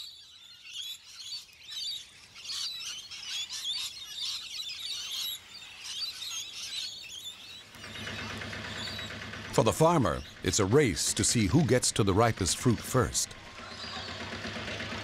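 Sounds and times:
flock of parrots calling: 0.0 - 15.0.

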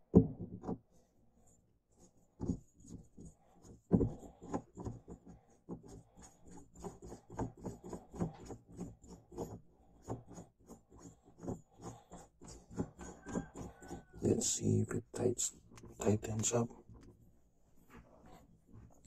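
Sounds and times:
shift knob scraping on threads: 6.5 - 14.6.

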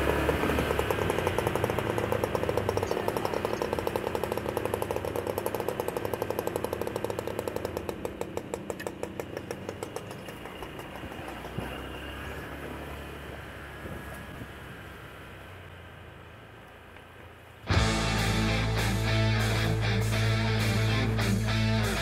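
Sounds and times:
small motorcycle engine running: 0.0 - 14.7, 17.7 - 22.0
low road hum: 0.0 - 22.0.

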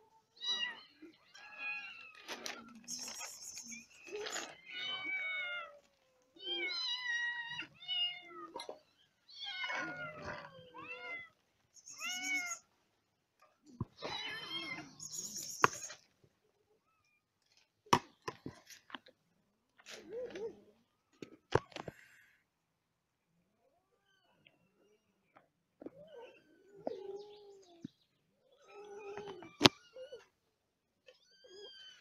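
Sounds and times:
cats meowing: 0.2 - 12.6, 13.7 - 16.0.

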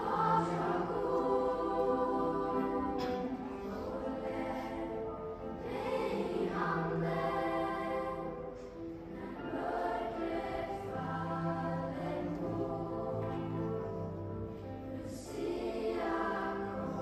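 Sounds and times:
school choir singing: 0.0 - 17.0.

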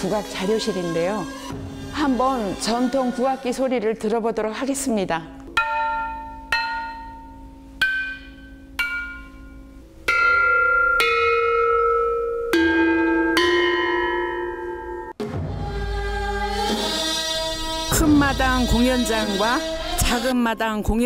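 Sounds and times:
tuned bronze bells struck: 5.6 - 15.2.

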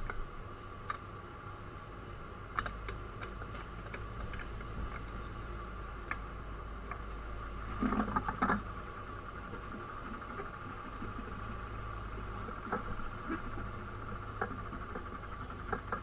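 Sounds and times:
light ticks: 0.0 - 1.1, 2.5 - 5.4, 6.0 - 7.1
steady high hum: 0.0 - 16.0.

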